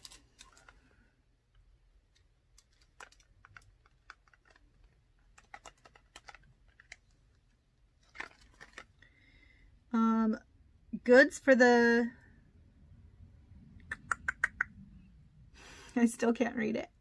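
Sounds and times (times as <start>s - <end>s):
small objects clicking and tapping: 2.1s - 7.2s.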